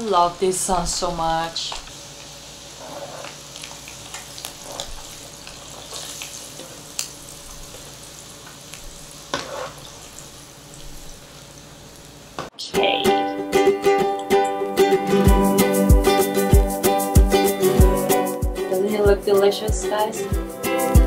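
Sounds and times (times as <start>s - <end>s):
squid deep-frying in oil: 0.0s - 12.4s.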